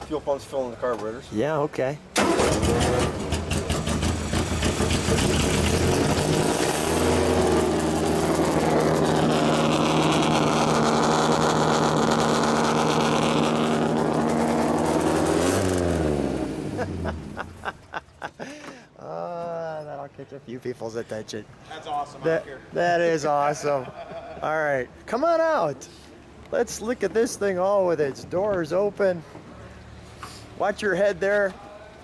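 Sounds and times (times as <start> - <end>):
race car engine running: 2.2 - 17.4.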